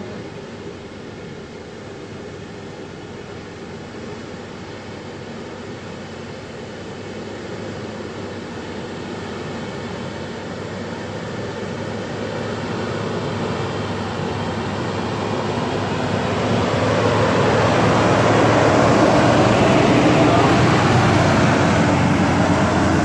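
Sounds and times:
diesel engine driving: 0.0 - 23.0.

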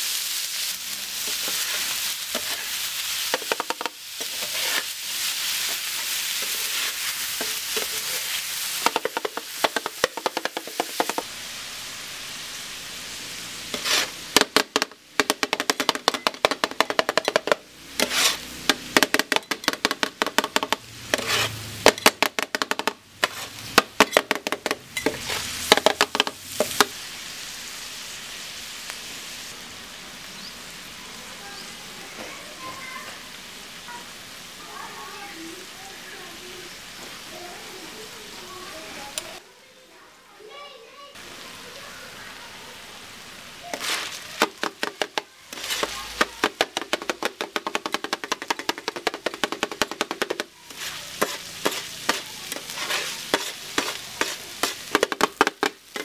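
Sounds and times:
meat sizzling on griddle: 0.0 - 56.0
metal spatulas clattering on griddle: 15.2 - 26.8.

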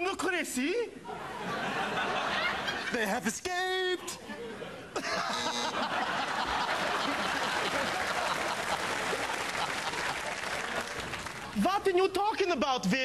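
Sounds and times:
audience laughing: 1.1 - 3.3, 4.2 - 11.3
audience applauding: 5.5 - 11.6.

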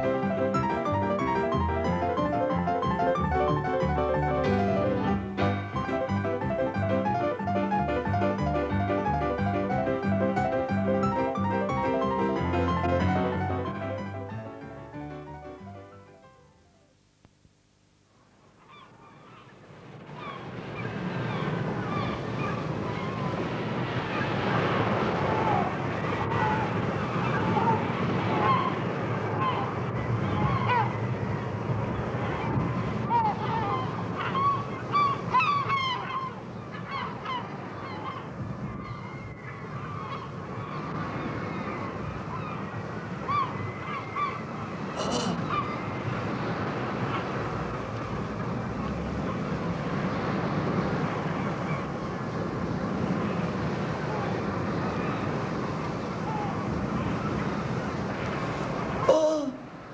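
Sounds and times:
surf-like noise: 0.0 - 59.9
gull cries: 18.6 - 24.4, 25.0 - 31.4, 32.3 - 46.3, 56.1 - 57.7, 58.9 - 59.8
honking bird calls: 32.1 - 47.4.

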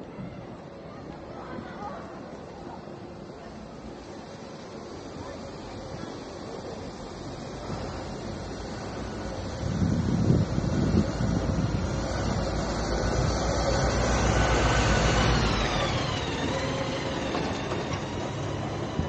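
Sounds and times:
vehicle motor whine: 6.9 - 19.0
wind rumbling on microphone: 7.1 - 19.0.

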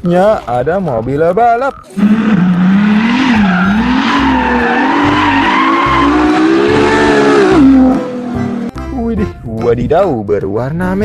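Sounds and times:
tyres squealing: 1.8 - 8.7
car engine revving: 1.9 - 8.8.

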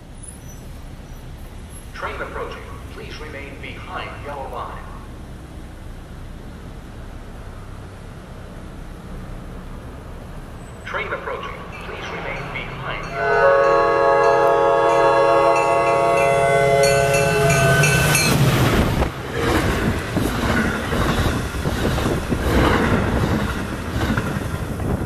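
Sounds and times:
train rushing past: 0.0 - 25.0
rail clatter: 9.0 - 25.0
train horn chord: 13.0 - 18.3.

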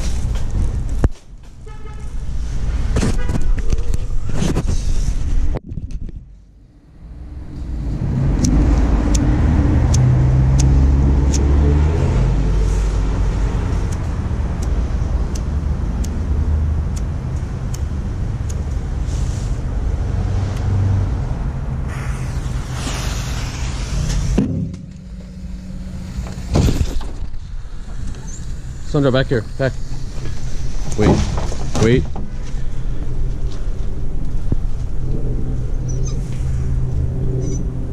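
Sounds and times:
engine rumbling: 0.0 - 37.9.

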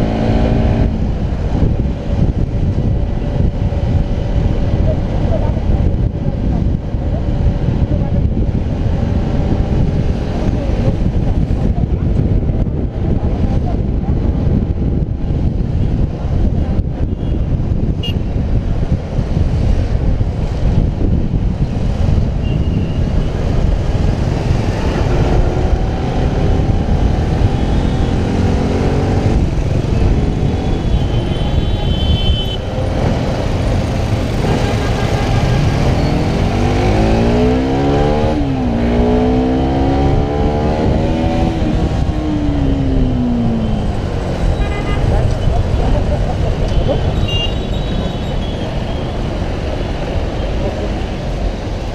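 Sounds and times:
wind rumble on microphone: 0.0 - 51.9.

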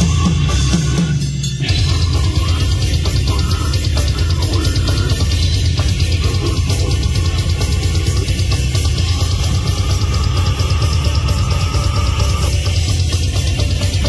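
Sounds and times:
metal band playing: 0.0 - 14.0
long held tone: 9.0 - 12.9.

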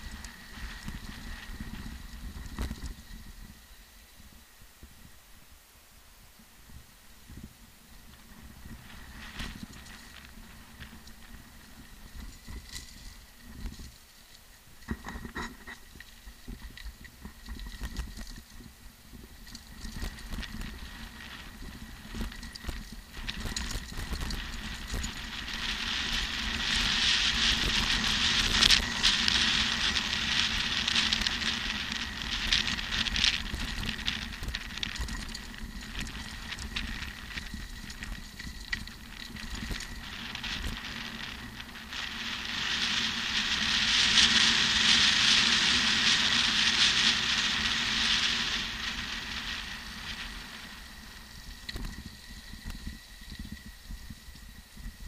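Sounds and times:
bike frame rattling: 19.4 - 53.6
rushing noise: 19.8 - 53.1.

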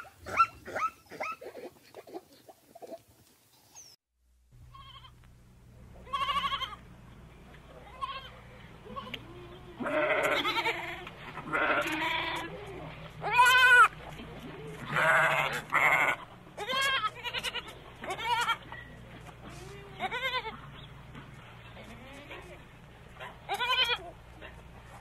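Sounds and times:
goats bleating: 6.0 - 6.8, 7.8 - 20.7, 21.7 - 22.6, 23.5 - 24.2.

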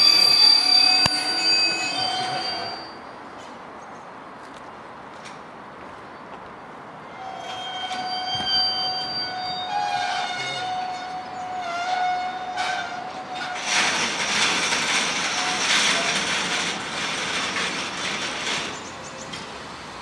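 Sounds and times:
wagon wheels squealing on rails: 0.0 - 3.2, 7.0 - 19.5.

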